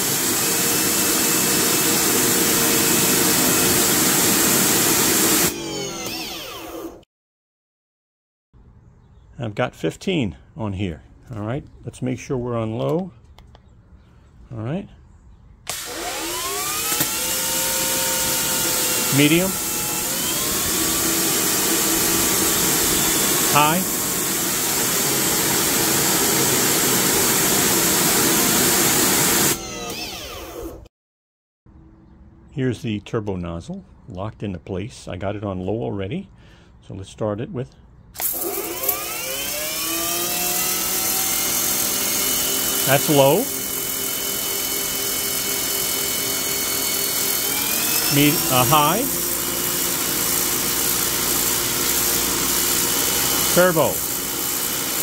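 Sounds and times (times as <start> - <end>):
motor and pump whining down: 0.0 - 7.0, 15.7 - 30.9, 38.2 - 55.0
pressure washer spraying water: 21.4 - 26.5, 47.5 - 55.0.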